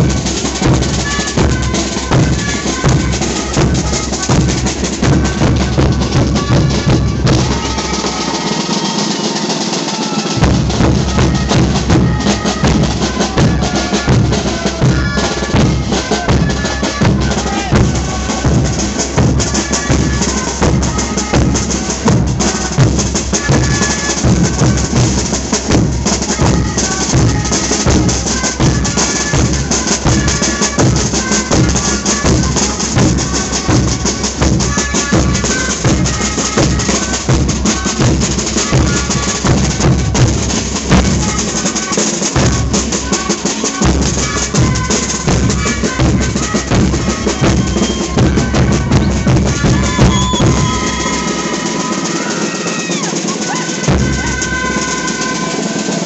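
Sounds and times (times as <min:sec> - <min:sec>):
bass drums beating: 0:00.0 - 0:08.4, 0:10.4 - 0:55.3
snare drums rattling: 0:00.0 - 0:56.0
duct flutes playing reedy melody: 0:47.3 - 0:53.6.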